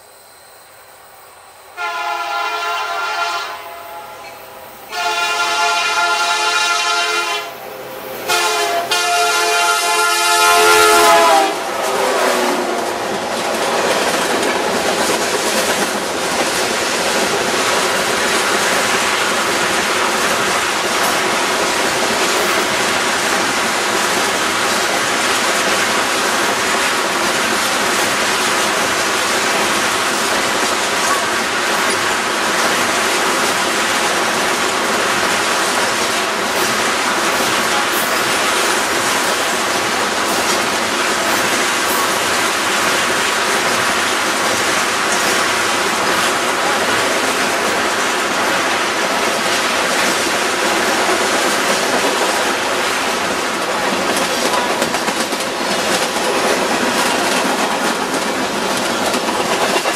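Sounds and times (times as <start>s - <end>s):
freight train rumble: 0.0s - 59.9s
locomotive air horn blasts: 1.7s - 7.6s, 8.2s - 12.6s
wheel clickety-clack: 11.8s - 59.9s.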